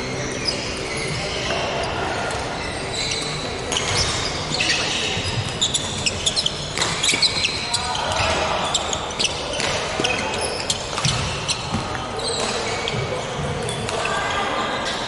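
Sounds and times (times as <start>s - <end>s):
sneakers squeaking: 0.0s - 15.0s
voices in a hall: 0.0s - 15.0s
rackets hitting shuttlecock: 3.7s - 14.1s.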